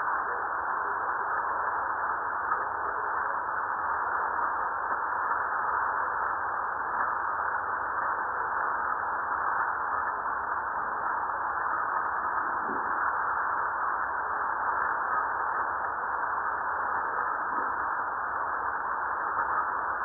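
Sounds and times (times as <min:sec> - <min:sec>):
steady hiss: 0:00.0 - 0:20.0.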